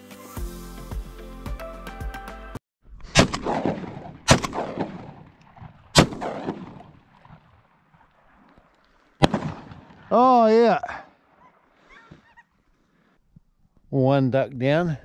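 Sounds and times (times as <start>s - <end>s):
background music: 0.0s - 2.6s
shotgun shots with echo: 3.1s - 7.5s, 9.2s - 10.2s.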